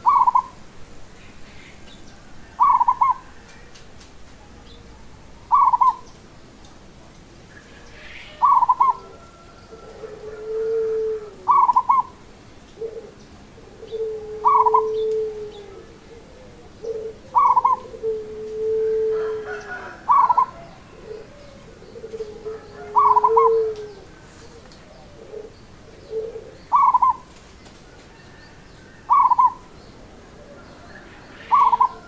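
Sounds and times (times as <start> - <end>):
dove cooing: 0.0 - 0.6, 1.6 - 6.1, 7.7 - 32.0.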